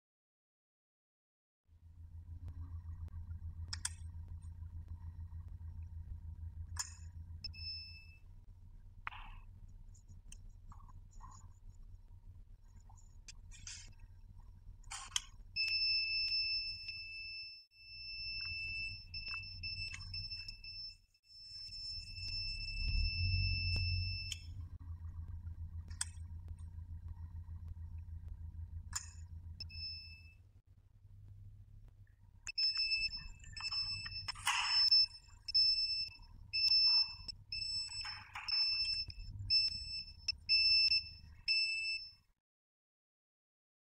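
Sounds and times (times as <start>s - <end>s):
low rumble: 1.7s - 15.6s, 21.5s - 41.5s
low motor hum: 1.7s - 42.1s
high warning beeps: 32.5s - 42.1s.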